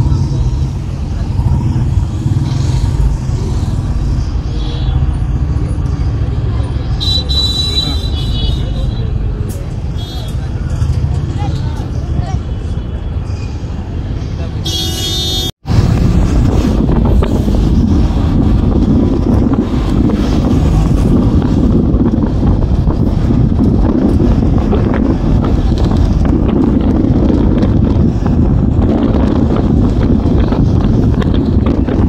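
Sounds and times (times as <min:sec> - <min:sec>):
bus engine and road noise: 0:00.0 - 0:32.0
wind buffeting microphone: 0:15.6 - 0:32.0.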